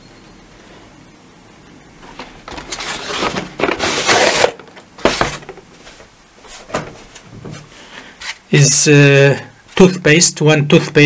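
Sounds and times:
cardboard box scraping open: 2.6s - 5.4s.

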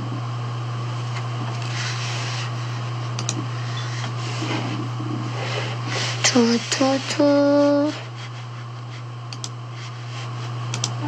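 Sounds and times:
low hum: 0.0s - 11.0s
soft clicks: 3.2s - 3.4s, 9.3s - 9.6s, 10.7s - 11.0s.

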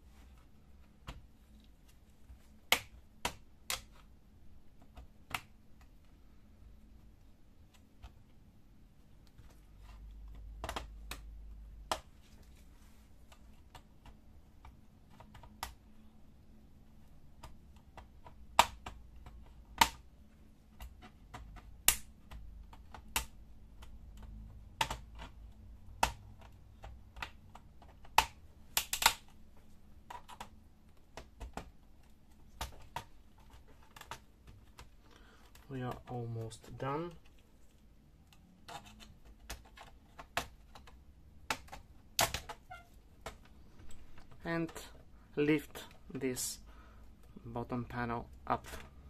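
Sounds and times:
plastic clips clicking loose: 20.8s - 29.4s, 38.2s - 44.8s.

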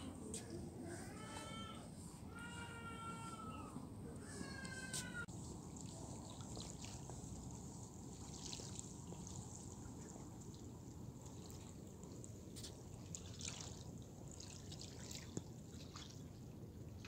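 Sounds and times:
small waves lapping: 4.9s - 17.0s.

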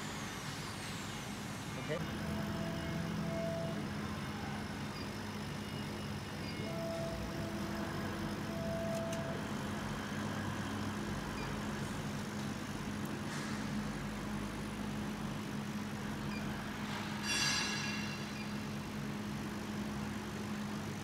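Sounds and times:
laser engraver humming: 0.1s - 13.1s.

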